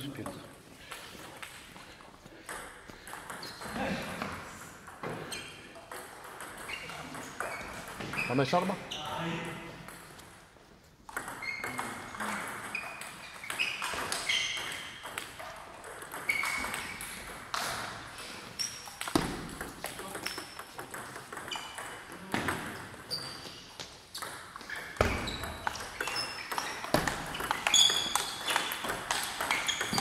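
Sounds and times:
table tennis ball pinging: 2.5 - 3.7, 4.8 - 8.4, 11.1 - 30.0.

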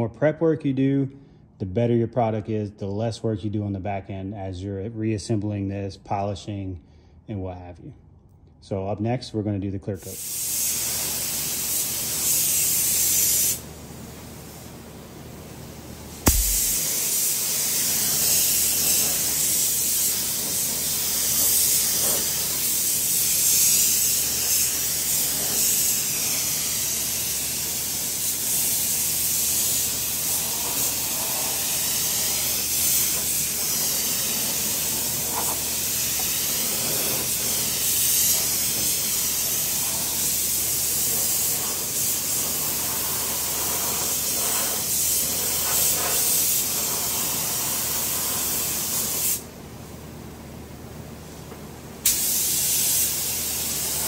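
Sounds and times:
paint spray gun hissing: 10.1 - 13.7, 16.0 - 49.5, 52.0 - 54.0.

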